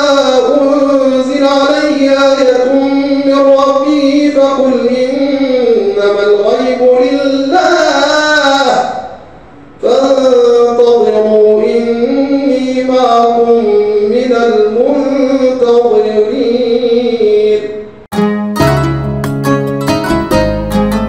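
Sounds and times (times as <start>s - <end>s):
man chanting melodically: 0.0s - 18.0s
plucked string music: 18.1s - 21.0s.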